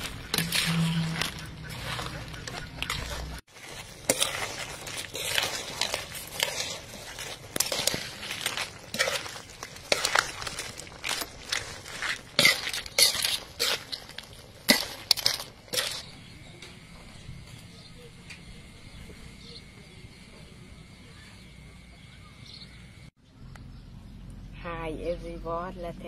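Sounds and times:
crab shells clattering: 0:00.0 - 0:16.1
metal spatula scraping a wok: 0:00.0 - 0:16.1
steady sizzle: 0:03.4 - 0:16.3.

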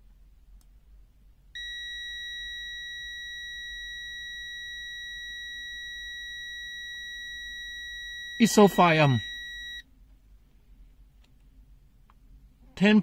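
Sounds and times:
multimeter continuity beep: 0:01.6 - 0:09.8.

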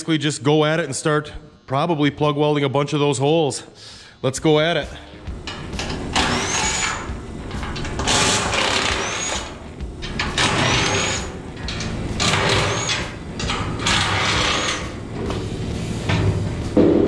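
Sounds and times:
power tool bursts: 0:05.6 - 0:15.0.

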